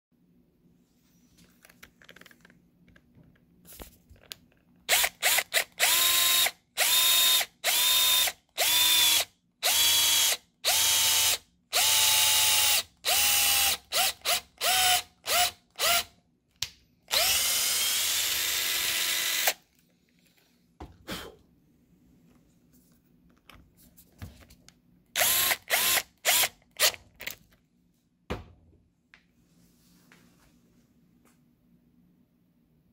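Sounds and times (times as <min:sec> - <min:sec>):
cordless drill drilling into wood: 0:04.9 - 0:16.1, 0:17.1 - 0:19.6, 0:25.2 - 0:27.0.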